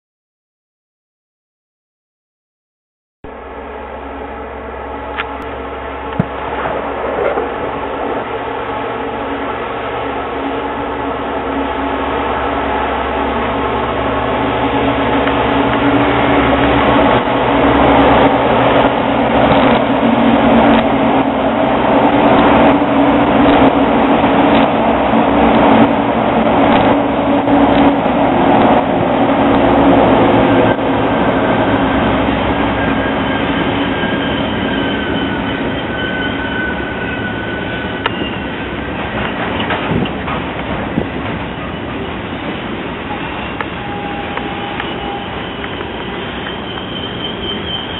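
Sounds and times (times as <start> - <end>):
diesel locomotive engines droning: 3.3 - 47.9
high-pitched wheel squeal: 32.3 - 38.6, 43.1 - 47.9.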